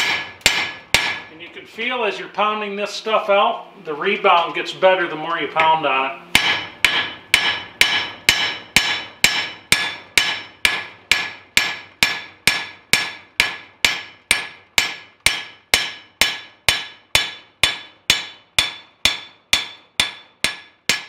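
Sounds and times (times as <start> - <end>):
hammer striking anvil: 0.0 - 1.3, 5.6 - 21.0.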